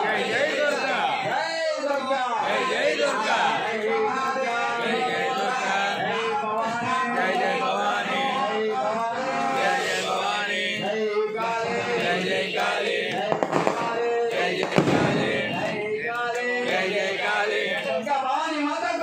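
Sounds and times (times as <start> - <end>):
man chanting melodically: 0.0 - 19.0
sharp cracks: 13.3 - 15.9.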